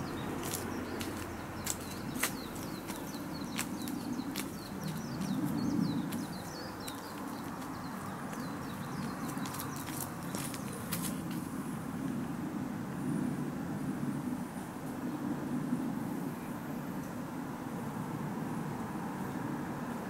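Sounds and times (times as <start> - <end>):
small birds chirping: 0.0 - 11.5.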